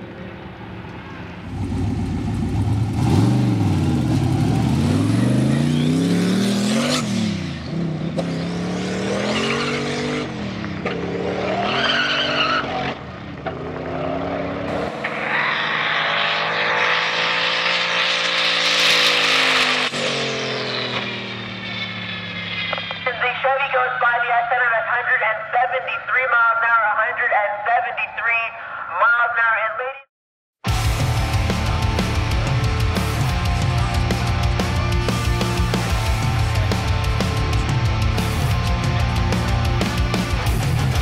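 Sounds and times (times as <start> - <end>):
tires spinning: 0.7 - 23.2
engine revving at full throttle: 1.5 - 22.8, 30.7 - 41.0.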